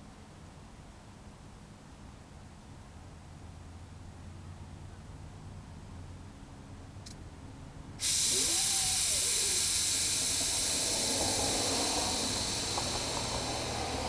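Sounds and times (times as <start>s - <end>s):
air suspension hissing: 8.0s - 14.0s.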